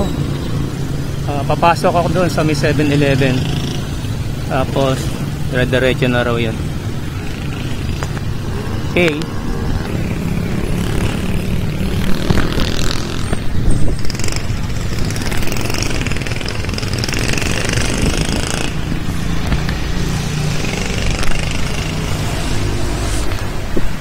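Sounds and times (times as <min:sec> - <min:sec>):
motor traffic: 0:00.0 - 0:24.0
wind rumbling on microphone: 0:06.5 - 0:24.0
bicycle rolling: 0:09.6 - 0:22.6.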